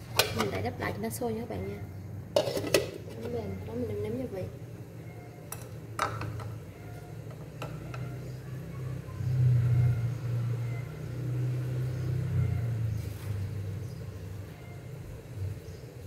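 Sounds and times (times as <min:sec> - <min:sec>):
low engine-like rumble: 0:06.4 - 0:16.0.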